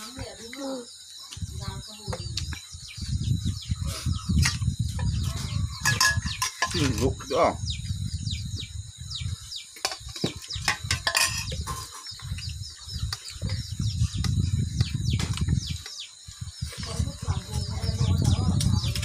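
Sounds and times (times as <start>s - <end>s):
chicks peeping: 0.0s - 19.0s
metal dishes clinking: 5.8s - 7.2s, 9.8s - 12.1s.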